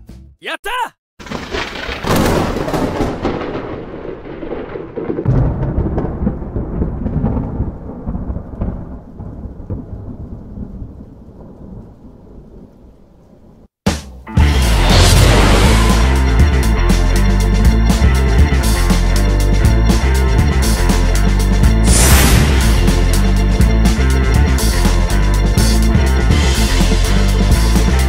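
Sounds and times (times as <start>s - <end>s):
thunder: 1.2s - 12.9s, 14.4s - 16.7s, 21.8s - 24.0s
rain: 1.2s - 13.7s.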